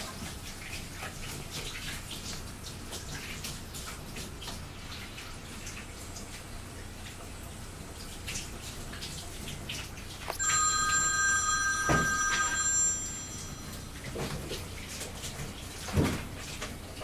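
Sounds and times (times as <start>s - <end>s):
bell-like chime: 10.4s - 14.6s.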